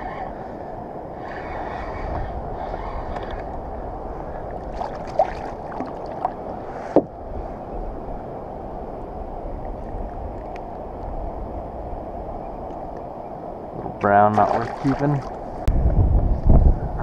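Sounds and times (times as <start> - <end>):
wind and water noise: 0.0 - 17.0
water splashing: 4.5 - 6.5, 14.1 - 15.6.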